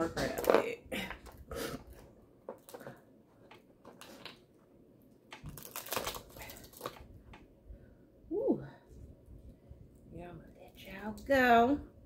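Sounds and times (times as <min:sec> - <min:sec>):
crab shells cracking: 0:05.3 - 0:07.4.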